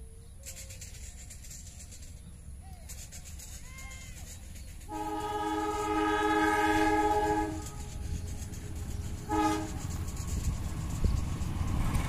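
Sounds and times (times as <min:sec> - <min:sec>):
low steady locomotive rumble: 0:00.0 - 0:12.0
train horn blasts: 0:04.9 - 0:08.2, 0:09.2 - 0:10.0.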